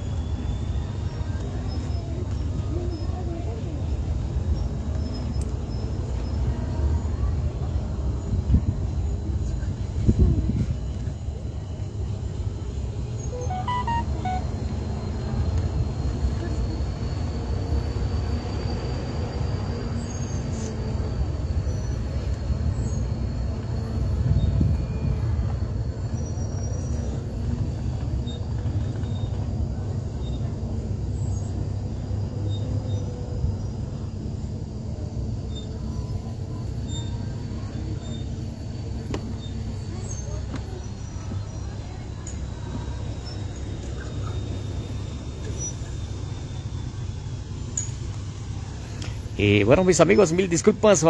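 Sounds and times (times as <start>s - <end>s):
wind noise on microphone: 9.9s - 11.0s, 24.2s - 25.5s
thin high whine: 13.2s - 15.0s
short high notes: 13.3s - 14.6s.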